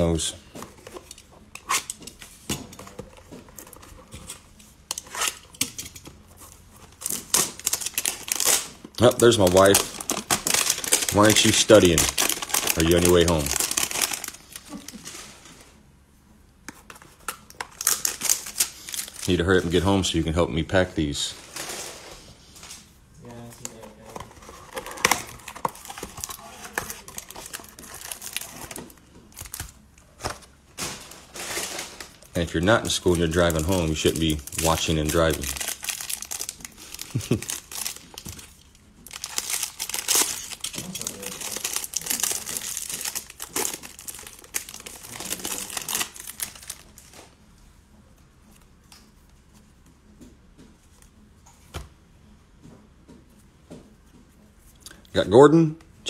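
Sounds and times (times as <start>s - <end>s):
cardboard tearing and crinkling: 7.0s - 15.3s, 23.7s - 32.3s, 33.0s - 47.2s.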